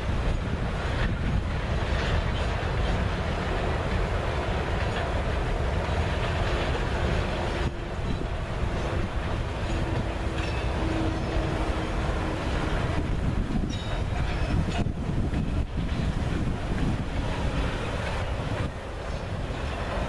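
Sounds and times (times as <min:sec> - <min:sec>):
freight train rumbling past: 0:00.0 - 0:20.0.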